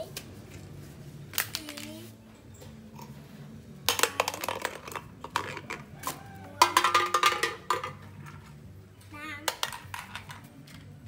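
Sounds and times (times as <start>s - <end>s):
metallic clattering and clinking: 3.8s - 8.6s.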